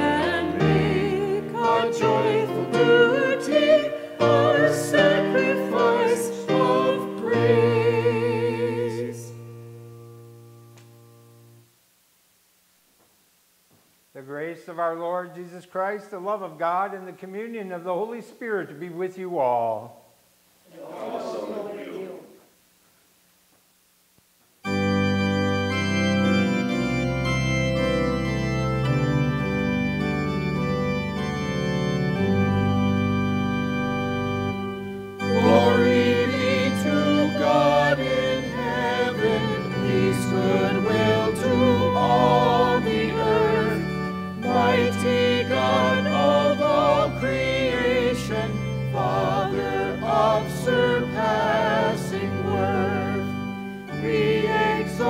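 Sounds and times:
congregation singing a hymn: 0.0 - 9.9, 20.7 - 22.4, 24.7 - 55.0
organ playing: 0.0 - 11.6, 24.6 - 55.0.

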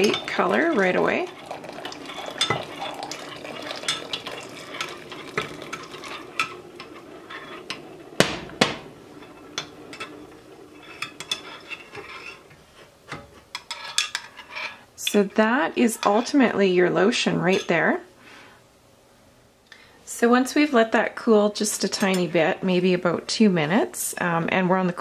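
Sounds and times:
metal spoon stirring in glass: 0.0 - 7.6.

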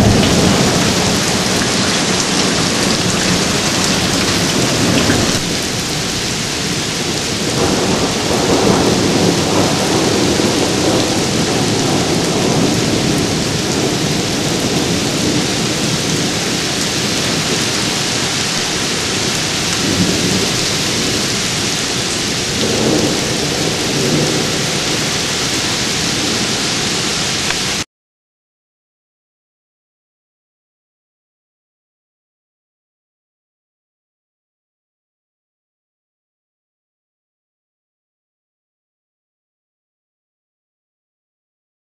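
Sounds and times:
rolling thunder: 0.0 - 27.2
heavy rain on grass and pavement: 0.0 - 27.9.

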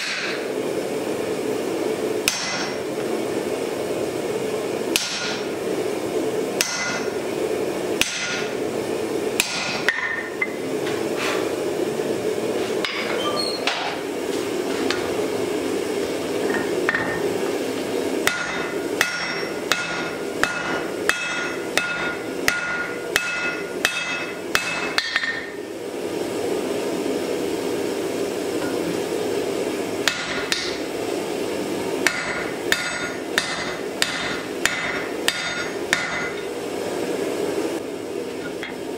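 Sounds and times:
hammer striking iron on anvil: 0.0 - 0.4, 2.2 - 2.8, 4.9 - 5.5, 6.6 - 7.2, 8.0 - 8.5, 9.4 - 10.4, 18.2 - 25.5, 30.0 - 30.8, 32.0 - 36.5.

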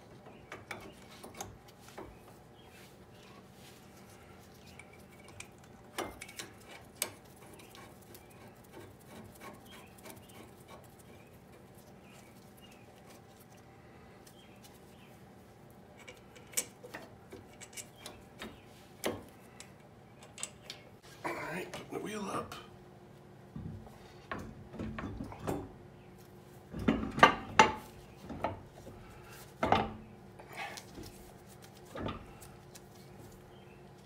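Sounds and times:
faint steady hum: 0.0 - 34.0.

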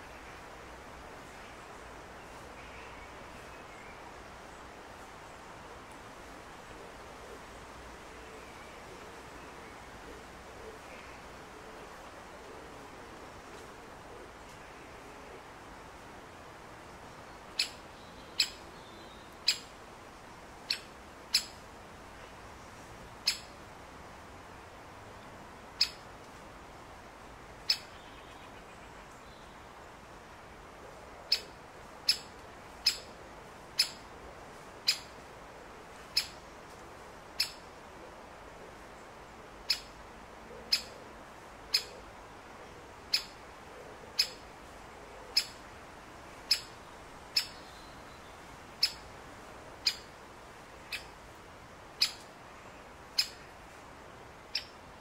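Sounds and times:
woodpecker sharp kik call: 17.6 - 17.8, 18.4 - 18.6, 19.4 - 19.7, 20.7 - 21.6, 23.2 - 23.5, 25.8 - 26.0, 32.1 - 33.1, 33.8 - 34.0, 34.9 - 35.1, 36.2 - 36.4, 37.4 - 37.6, 39.7 - 39.9, 40.7 - 40.9, 41.7 - 42.0, 43.1 - 43.4, 45.4 - 45.6, 46.5 - 46.7, 47.4 - 47.6, 48.8 - 49.0, 49.8 - 50.1, 52.0 - 52.2, 53.2 - 53.4, 54.5 - 54.7.

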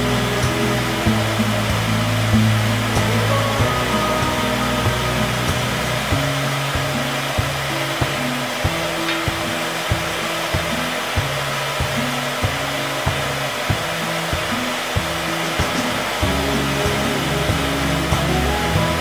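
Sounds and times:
airy blowing hiss: 0.0 - 19.0
background music with steady beat: 0.0 - 19.0.

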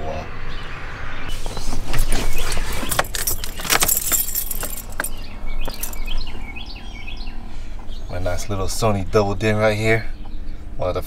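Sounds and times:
car keys jangling: 2.0 - 6.3.

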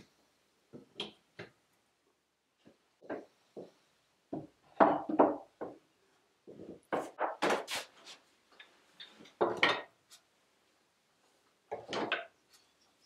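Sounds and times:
wooden tools knocking on shelf: 4.3 - 5.8, 9.4 - 9.9.

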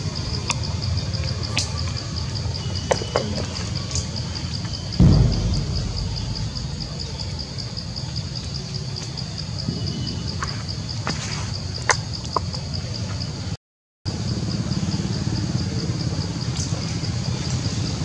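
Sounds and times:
loud low thump: 5.0 - 7.6
low rumble: 5.0 - 7.6.

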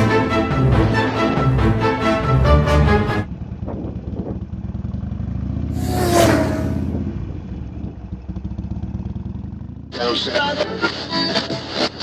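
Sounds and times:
motorcycle engine running: 3.3 - 10.6
rushing whoosh: 5.8 - 7.2.

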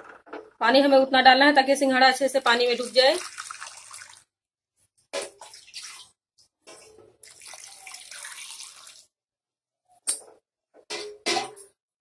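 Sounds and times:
water pouring into steel pot: 2.6 - 4.3, 5.3 - 6.2, 7.2 - 9.2.

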